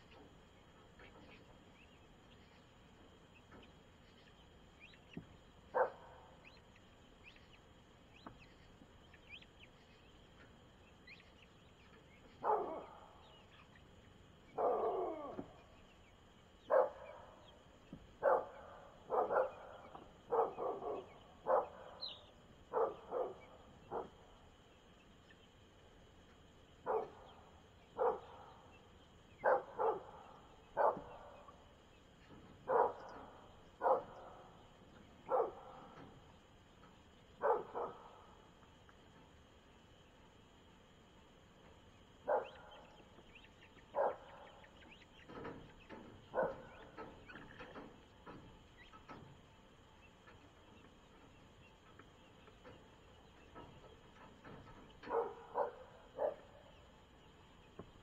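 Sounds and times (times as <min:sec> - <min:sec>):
dog barking: 0:05.7 - 0:06.2, 0:12.4 - 0:13.1, 0:14.5 - 0:15.4, 0:16.7 - 0:17.3, 0:18.2 - 0:22.0, 0:22.7 - 0:24.2, 0:26.8 - 0:27.3, 0:28.0 - 0:28.4, 0:29.4 - 0:30.2, 0:30.8 - 0:31.4, 0:32.7 - 0:33.2, 0:33.8 - 0:34.3, 0:35.3 - 0:35.8, 0:37.4 - 0:38.2, 0:42.2 - 0:42.8, 0:43.9 - 0:44.5, 0:46.3 - 0:46.8, 0:55.0 - 0:56.6.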